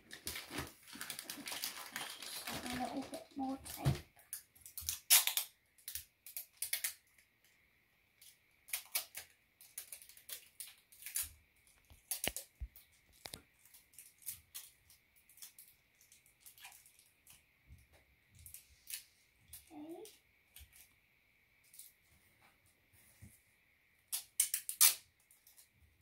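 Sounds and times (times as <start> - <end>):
scissors cutting tape: 4.6 - 7.0, 24.1 - 25.0
sticky tape pulled off roll: 4.8 - 7.0, 24.1 - 25.1.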